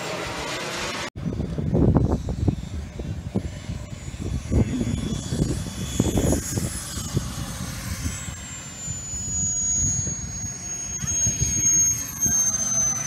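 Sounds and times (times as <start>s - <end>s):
model airplane engine whine: 0.0s - 13.0s.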